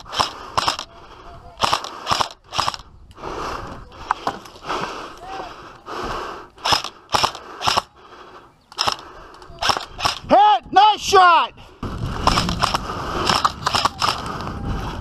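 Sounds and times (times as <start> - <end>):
airsoft gun shots: 6.6 - 7.9.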